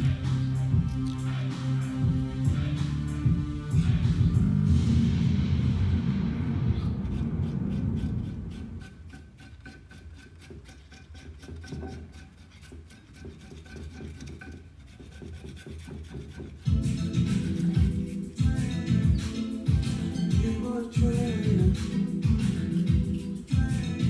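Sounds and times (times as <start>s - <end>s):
background music: 0.0s - 8.9s, 16.6s - 24.0s
carrot being scraped by hand: 6.8s - 20.7s, 21.4s - 24.0s.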